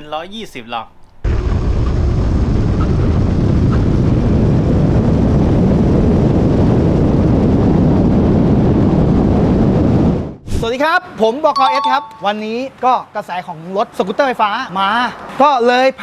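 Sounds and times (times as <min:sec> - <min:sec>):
wind buffeting microphone: 0:01.3 - 0:10.6
road and tyre noise: 0:12.2 - 0:16.0.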